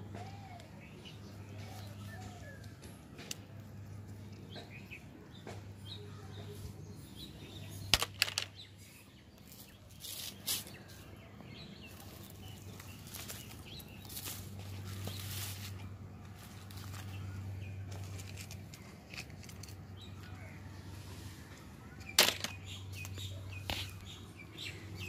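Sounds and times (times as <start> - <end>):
dry bark rustling and scraping: 9.3 - 24.2.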